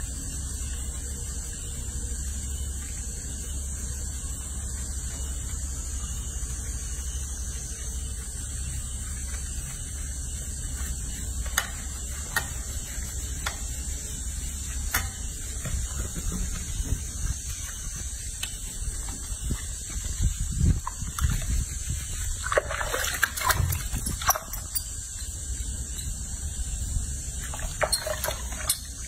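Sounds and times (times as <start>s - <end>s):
steady hiss: 0.0s - 29.0s
water sloshing: 18.3s - 25.0s, 27.4s - 29.0s.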